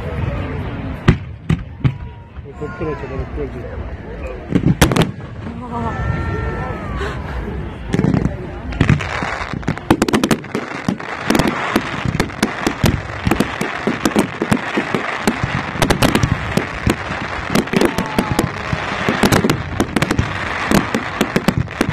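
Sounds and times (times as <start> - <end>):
fireworks banging: 4.4 - 6.2, 7.8 - 21.9
fireworks crackling: 4.4 - 21.9.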